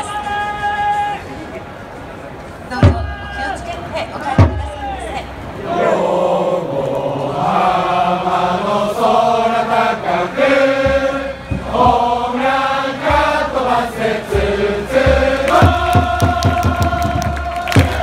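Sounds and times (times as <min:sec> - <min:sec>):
crowd singing in unison: 0:05.6 - 0:18.0.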